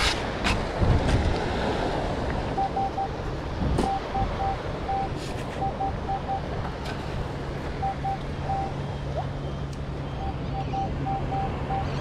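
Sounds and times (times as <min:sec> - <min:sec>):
wind rumbling on microphone: 0:00.0 - 0:10.0
metal detector beeping: 0:02.6 - 0:03.1, 0:03.8 - 0:06.4, 0:10.2 - 0:12.0.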